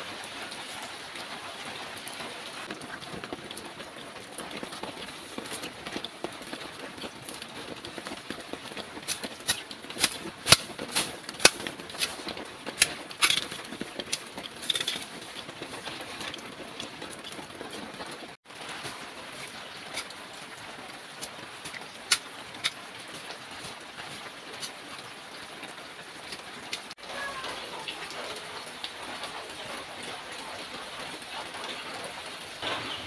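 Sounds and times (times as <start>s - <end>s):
leaves rustling: 2.6s - 26.2s
knife chopping plant stems: 9.0s - 14.2s.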